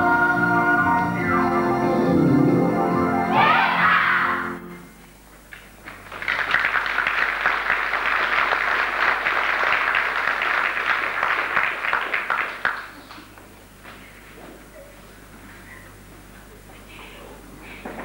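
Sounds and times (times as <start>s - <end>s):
audience applauding: 5.5s - 13.5s.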